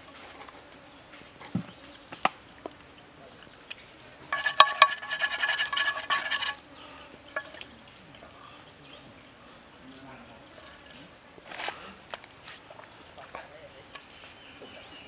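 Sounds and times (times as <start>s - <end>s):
chopsticks scraping metal pan: 4.3s - 6.6s, 7.4s - 7.6s.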